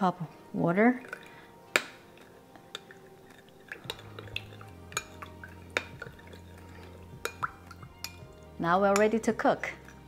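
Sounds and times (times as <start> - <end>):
spoon clinking on glass bowl: 1.0 - 10.0
wet swirling: 2.2 - 8.5.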